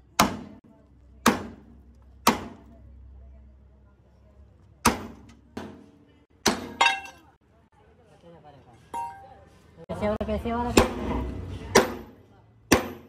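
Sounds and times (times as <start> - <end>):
hammer striking metal: 10.8 - 13.0.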